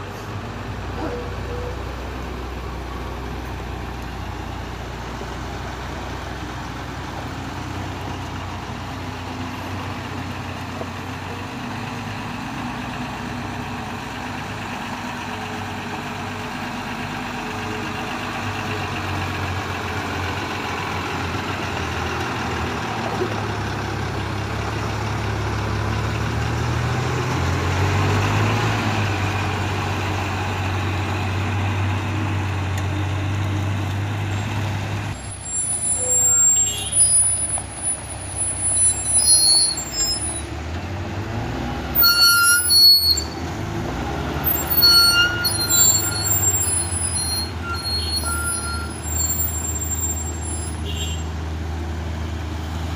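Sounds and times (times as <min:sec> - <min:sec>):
diesel engine running: 0:00.0 - 0:52.9.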